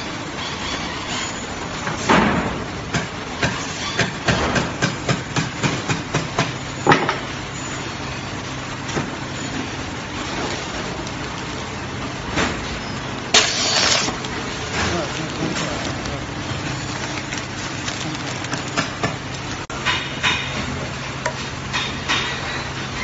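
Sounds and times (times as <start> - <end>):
plastic bag rustling: 13.4 - 19.6.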